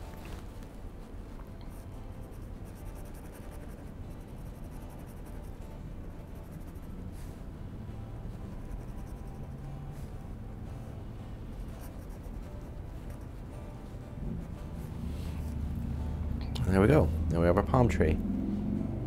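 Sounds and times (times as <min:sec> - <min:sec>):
low hum: 0:00.0 - 0:19.0
pen scratching on paper: 0:01.7 - 0:06.9, 0:08.5 - 0:09.5, 0:11.7 - 0:13.4.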